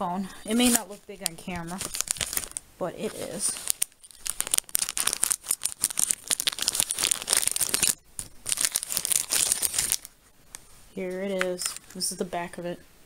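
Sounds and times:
plastic packaging crinkling: 0:00.4 - 0:10.2.

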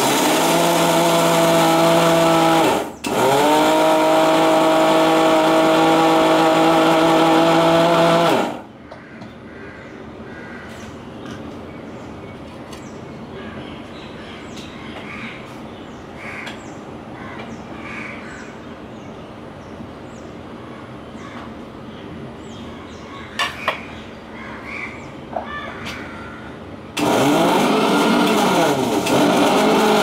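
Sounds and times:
crows cawing: 0:08.8 - 0:10.8, 0:16.2 - 0:18.5, 0:23.1 - 0:26.6.

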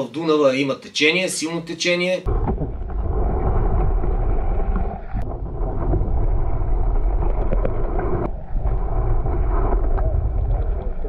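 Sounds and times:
underwater rush of moving water: 0:02.3 - 0:11.0.

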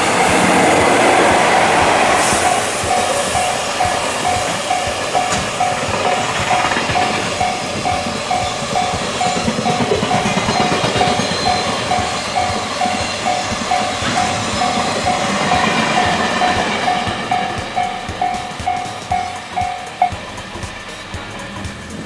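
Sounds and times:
freight train rumble and clatter: 0:00.0 - 0:22.0
level crossing warning bell: 0:00.0 - 0:22.0.

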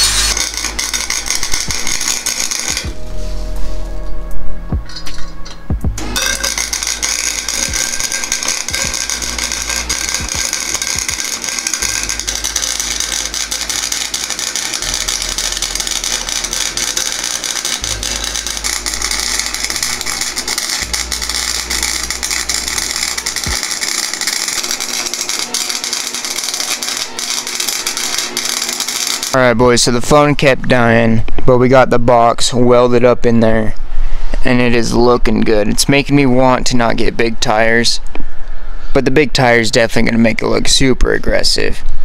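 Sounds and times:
welder crackling: 0:00.0 - 0:03.1, 0:06.0 - 0:30.3
background music with bass line: 0:02.7 - 0:23.7.

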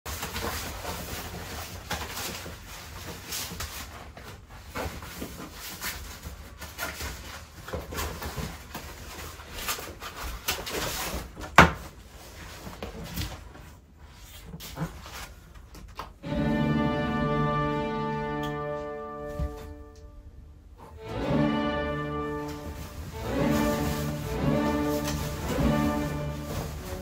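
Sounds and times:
clothes rustling: 0:20.9 - 0:27.0.

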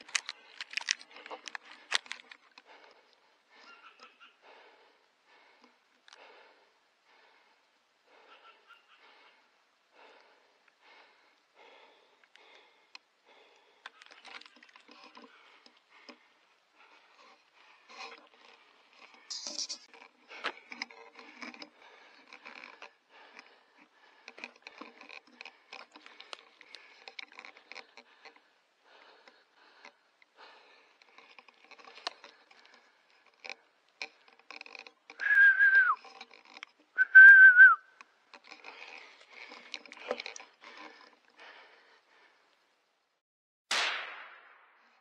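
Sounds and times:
faint rustling and crackling: 0:00.0 - 0:37.0, 0:37.8 - 0:43.2
short falling whistles: 0:35.2 - 0:36.0, 0:37.0 - 0:37.9.

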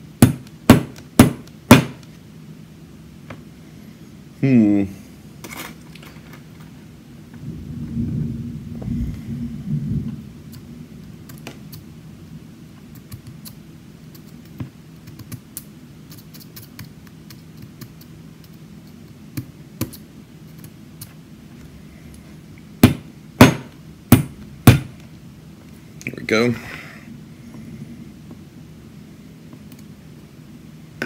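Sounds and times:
sharp loud knocks: 0:00.2 - 0:02.0, 0:22.8 - 0:24.9.

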